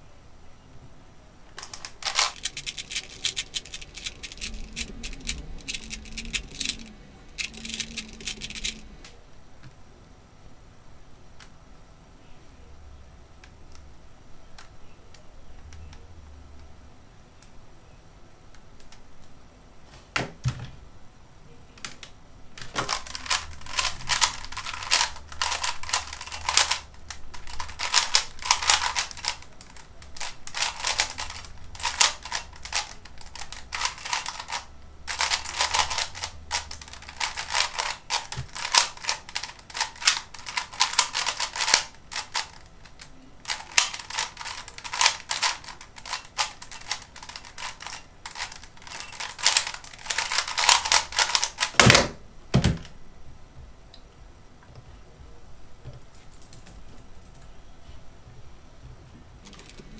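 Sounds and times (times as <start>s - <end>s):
puzzle cube clacking: 1.6s - 9.2s, 22.6s - 51.8s.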